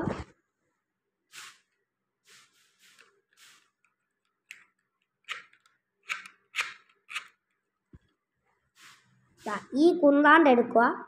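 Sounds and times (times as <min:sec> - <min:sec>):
plastic toy parts clicking: 0:04.3 - 0:07.6.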